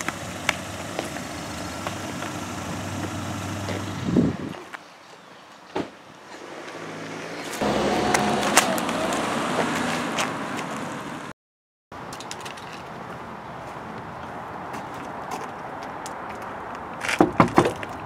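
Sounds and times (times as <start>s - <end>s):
car driving off: 0.0s - 4.5s, 6.4s - 11.3s.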